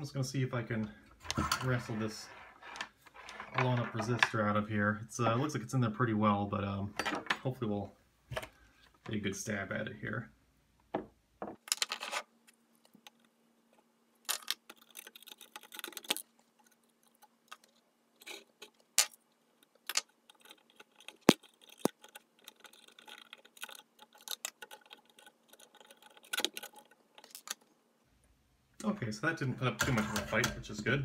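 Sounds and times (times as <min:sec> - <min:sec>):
small metallic clicks and scrapes: 0:11.7 - 0:27.7.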